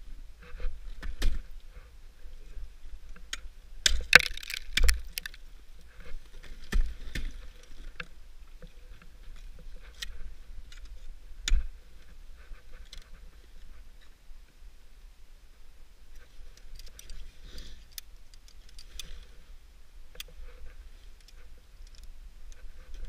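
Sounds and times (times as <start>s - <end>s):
ice shattering crunch: 3.9s - 5.4s
ice tools striking ice: 3.9s - 5.4s.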